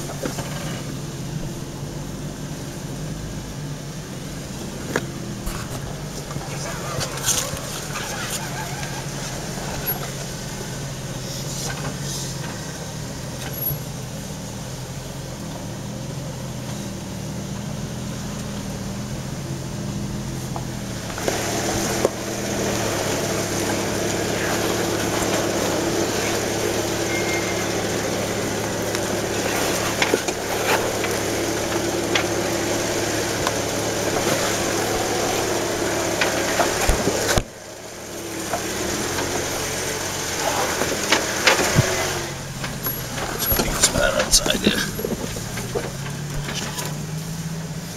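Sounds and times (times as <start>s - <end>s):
engine running at low speed: 0.0s - 47.9s
tyres crunching over rocks: 4.7s - 10.4s, 20.4s - 37.6s, 38.2s - 47.9s.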